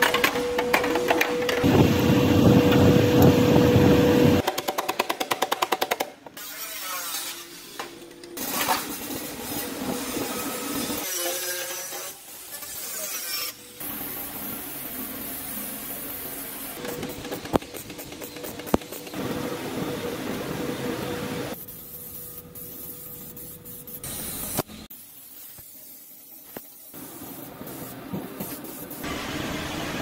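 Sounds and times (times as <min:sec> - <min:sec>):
quiet workshop noises: 0:00.0 - 0:30.0.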